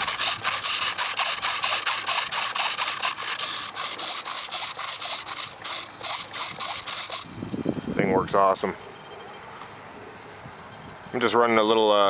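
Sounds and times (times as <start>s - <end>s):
micro servos buzzing: 0.0s - 8.0s.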